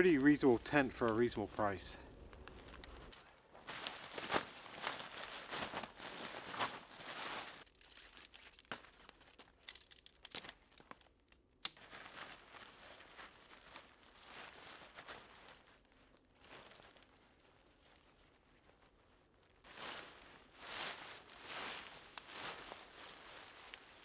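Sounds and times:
nylon fabric rustling: 2.3s - 8.1s, 11.8s - 24.0s
metal tent poles clicking: 11.6s - 11.8s.

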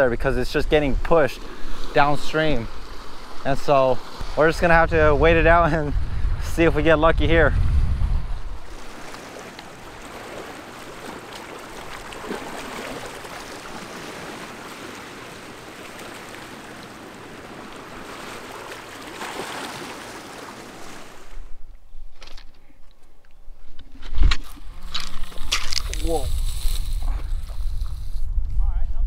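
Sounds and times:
fast river current rushing: 8.6s - 21.5s.

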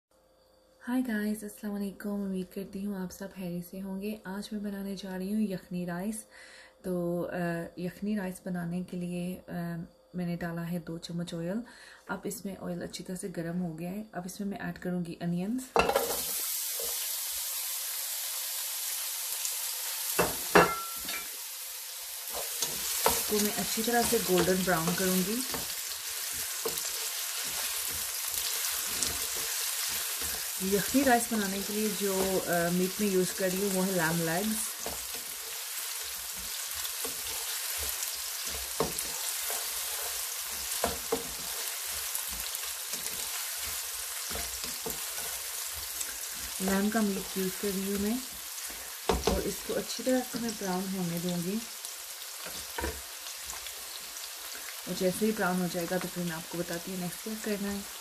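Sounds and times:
onions sizzling in hot oil: 15.8s - 58.0s
spatula scraping and tapping pan: 22.3s - 31.0s, 34.7s - 46.6s, 47.2s - 49.5s, 52.4s - 53.7s
spatula knocking in pan: 36.3s - 43.2s, 49.0s - 49.4s.

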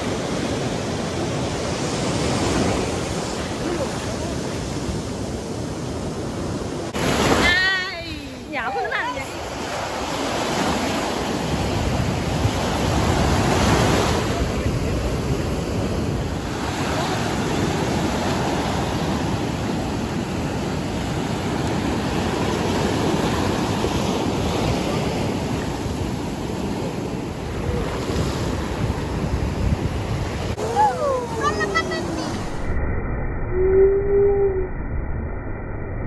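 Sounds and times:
surf breaking on sand: 6.2s - 32.7s
wind buffeting microphone: 10.7s - 32.8s.

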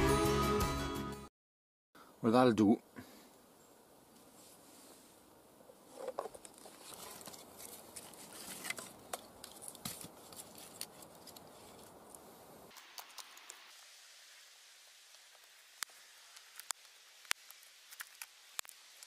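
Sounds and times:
wooden sticks knocking and scraping: 5.9s - 13.6s.

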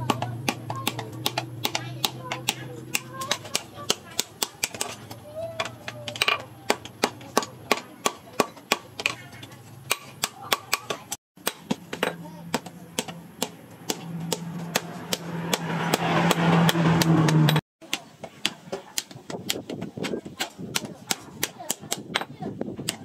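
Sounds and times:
hammer striking hot steel: 9.9s - 17.6s.

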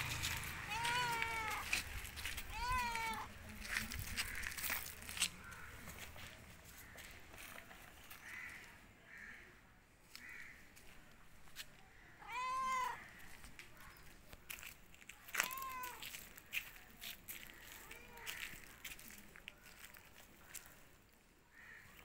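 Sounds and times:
cat meowing: 0.6s - 1.8s, 2.4s - 3.3s, 12.2s - 13.0s, 15.3s - 16.1s.

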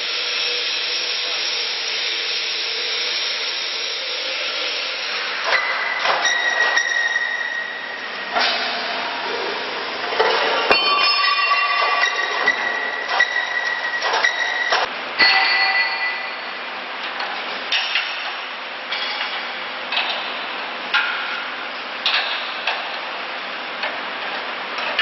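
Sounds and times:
metal parts knocking and ringing: 10.2s - 16.2s.

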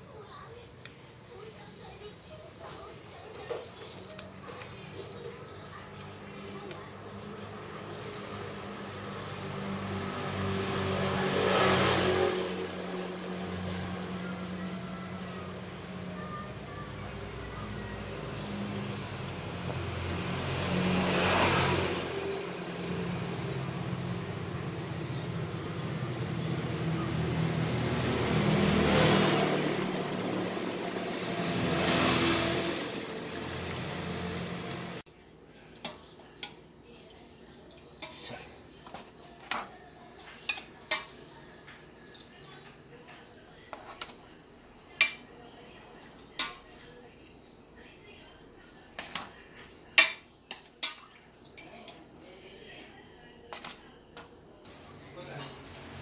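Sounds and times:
vehicle passing: 7.3s - 35.0s.

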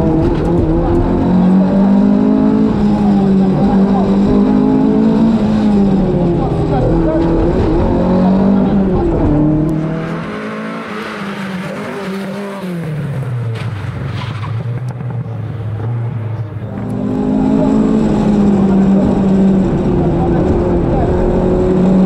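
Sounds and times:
rally car engine running hard: 0.0s - 13.8s, 14.8s - 22.0s.

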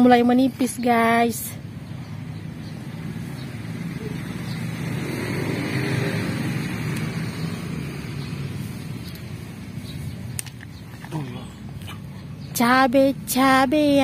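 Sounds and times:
vehicle driving past: 2.2s - 9.8s.

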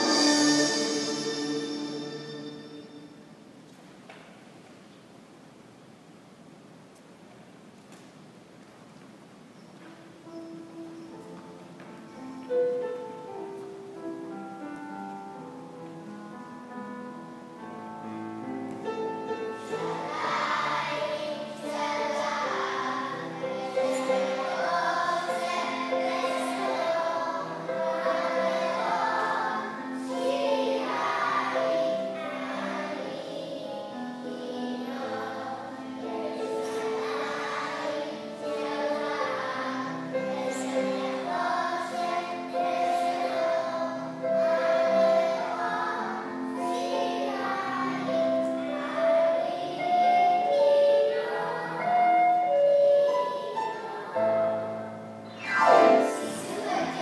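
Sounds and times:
children singing together: 0.0s - 3.3s, 18.7s - 57.0s
instrumental accompaniment: 0.0s - 3.6s, 10.4s - 33.6s, 48.8s - 57.0s.

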